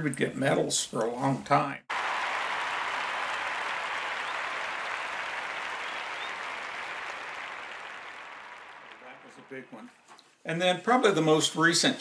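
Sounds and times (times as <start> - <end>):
crowd applauding: 1.9 - 10.0.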